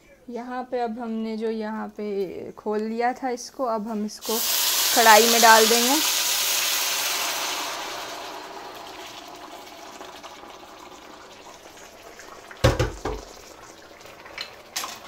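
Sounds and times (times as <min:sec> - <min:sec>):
liquid hissing on hot metal: 0:04.2 - 0:14.6
liquid simmering: 0:04.3 - 0:15.0.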